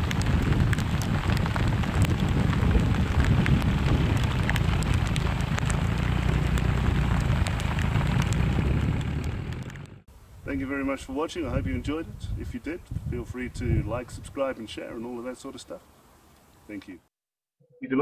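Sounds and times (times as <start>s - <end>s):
rain drops ticking: 0.0s - 10.0s
low rain rumble: 0.0s - 17.0s.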